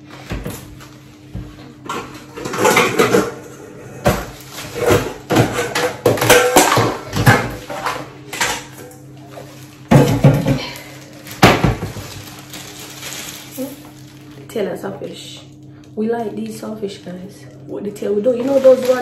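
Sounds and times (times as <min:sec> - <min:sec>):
dishes clattering: 0:01.8 - 0:09.0.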